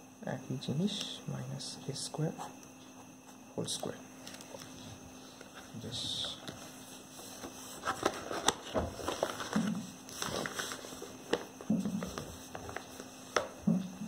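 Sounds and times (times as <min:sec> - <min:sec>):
paper rustling: 0:04.2 - 0:13.6.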